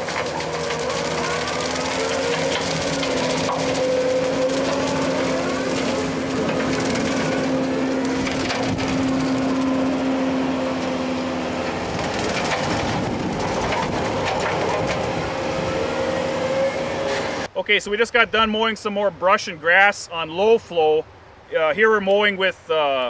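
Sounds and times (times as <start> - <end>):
brush being cut and shredded: 0.0 - 11.0
diesel engine under load: 0.0 - 17.6.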